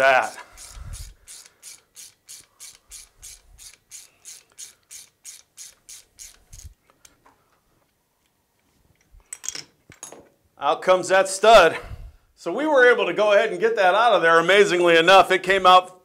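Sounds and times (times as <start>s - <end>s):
ratchet wrench clicking: 0.2s - 6.8s.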